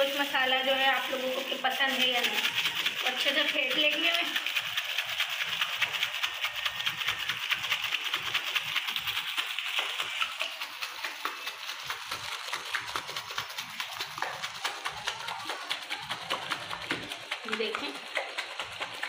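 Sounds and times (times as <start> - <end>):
plastic bag crinkling: 0.0 - 19.0.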